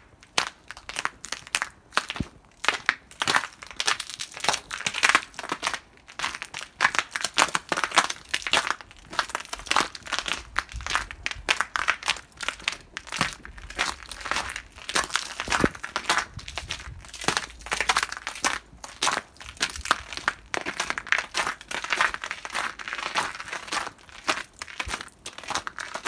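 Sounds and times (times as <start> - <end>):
footsteps crunching in snow: 12.1 - 25.6.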